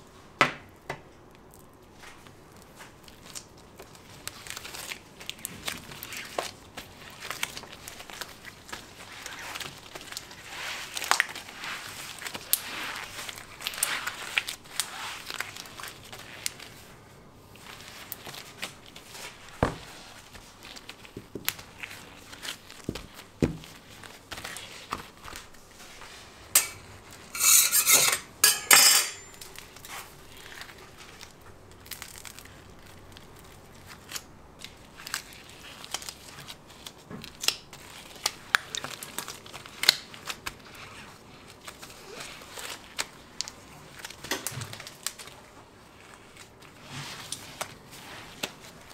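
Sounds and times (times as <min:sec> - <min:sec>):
hand tools clinking and scraping: 0:26.5 - 0:29.5
loud noisy scrape: 0:26.6 - 0:29.3.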